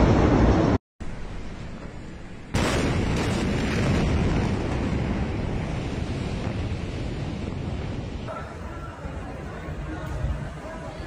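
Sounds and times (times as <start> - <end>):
explosion bang: 2.5 - 8.6.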